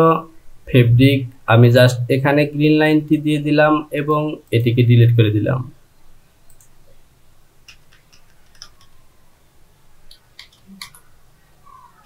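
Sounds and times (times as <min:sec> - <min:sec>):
faint low hum: 0:00.0 - 0:12.0
computer mouse clicking: 0:06.5 - 0:06.7, 0:07.6 - 0:09.0, 0:10.1 - 0:11.1.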